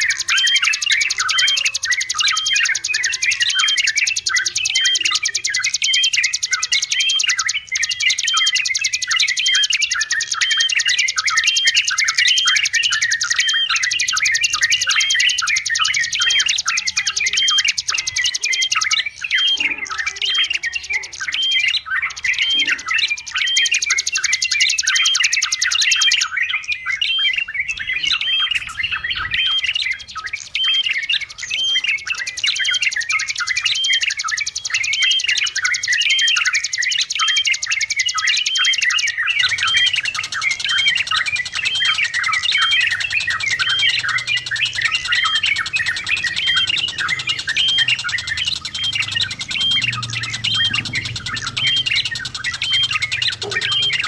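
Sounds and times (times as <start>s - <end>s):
bulbuls chattering calls: 0.0s - 54.0s.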